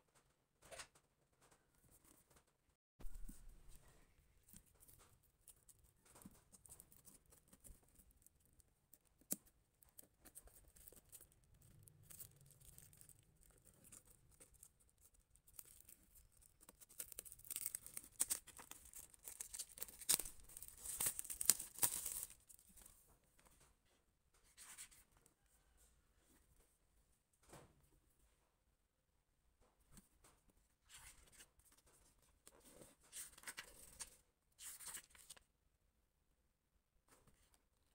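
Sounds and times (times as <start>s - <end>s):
plastic wrap crinkling: 10.5s - 22.9s.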